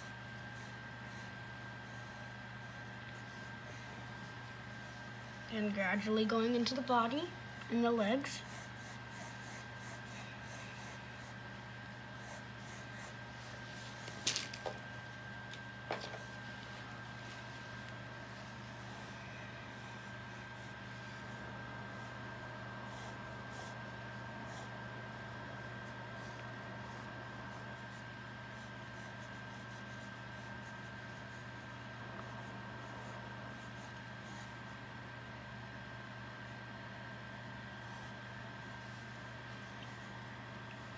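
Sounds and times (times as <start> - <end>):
steady low hum: 0.0 - 40.9
pencil scratching on paper: 8.4 - 13.6, 26.9 - 34.6.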